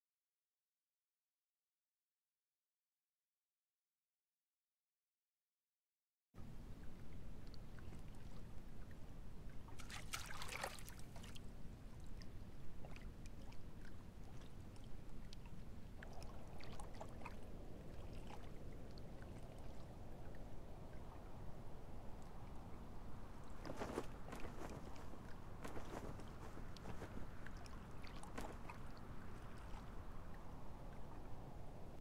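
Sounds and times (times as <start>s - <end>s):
light water drips: 6.4s - 32.0s
water lapping and trickling: 6.4s - 32.0s
small splashes: 9.6s - 11.5s, 12.1s - 21.2s, 22.2s - 31.4s.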